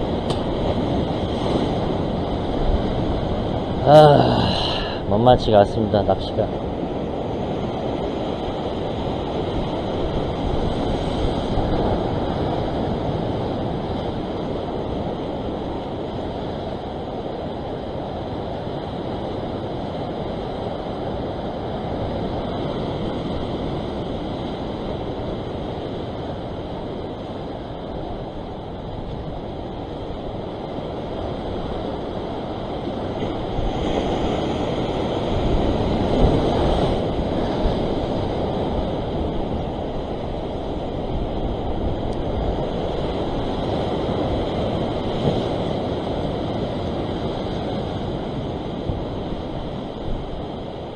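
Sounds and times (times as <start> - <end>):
ocean waves washing over rock: 0.0 - 50.9.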